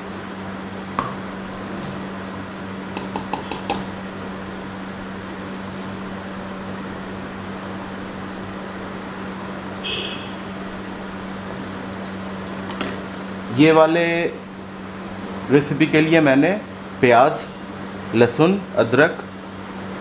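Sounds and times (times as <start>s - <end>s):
steady mechanical hum: 0.0s - 20.0s.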